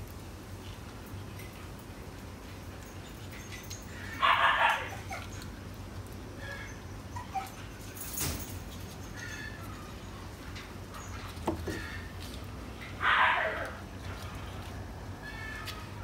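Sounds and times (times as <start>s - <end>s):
newborn puppies whimpering: 6.4s - 7.7s.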